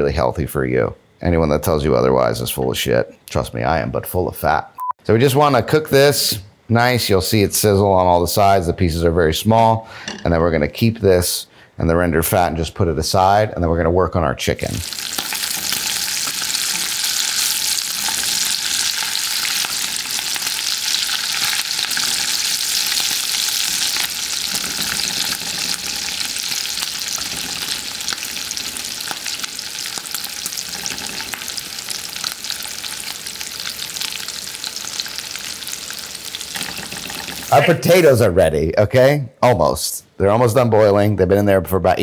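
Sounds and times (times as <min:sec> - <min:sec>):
meat sizzling in a skillet: 0:14.8 - 0:37.6.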